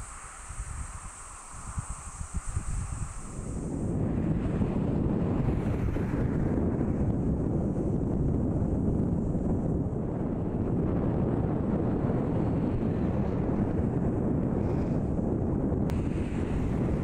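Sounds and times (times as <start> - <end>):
wind buffeting microphone: 0.0 - 17.0
choppy sea waves: 11.9 - 17.0.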